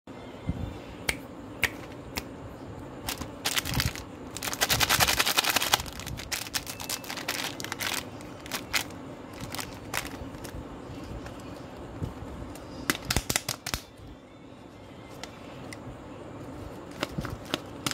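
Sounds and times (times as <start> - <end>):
plastic wrapper crinkling: 3.1 - 10.5.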